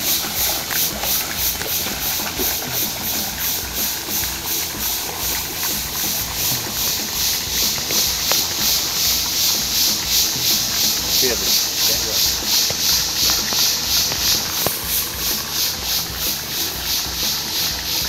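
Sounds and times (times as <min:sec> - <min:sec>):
low motor hum: 0:00.0 - 0:18.0
pulsing water splashing: 0:00.0 - 0:18.0.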